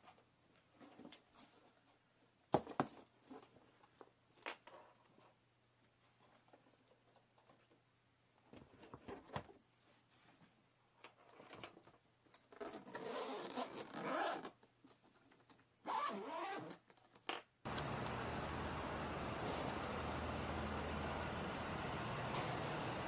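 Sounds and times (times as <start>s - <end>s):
rustling and scraping: 0.0s - 2.1s, 8.5s - 16.8s
steady low rumble with hiss: 17.7s - 23.0s.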